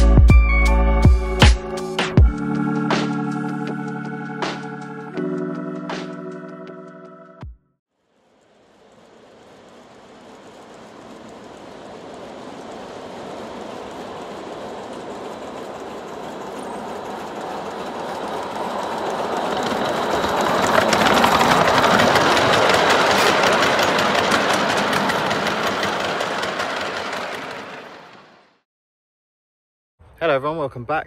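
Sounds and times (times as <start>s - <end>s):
miniature steam locomotive running: 8.2s - 28.5s
wheels clicking on track: 8.2s - 28.6s.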